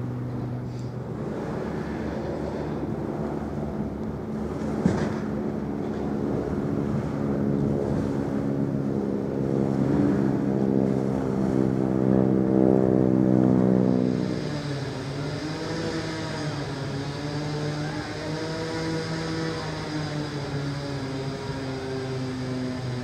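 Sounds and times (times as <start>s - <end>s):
ship diesel engine drone: 0.0s - 23.0s.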